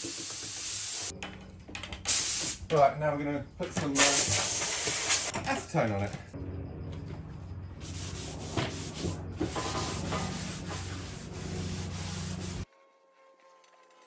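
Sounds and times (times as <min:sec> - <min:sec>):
paper towel rubbing on hull: 0:07.9 - 0:12.7.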